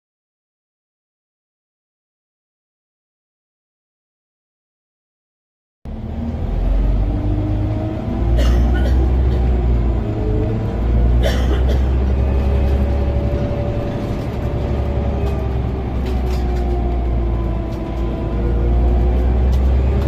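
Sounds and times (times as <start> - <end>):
bus engine rumble with whine: 5.9 - 20.0.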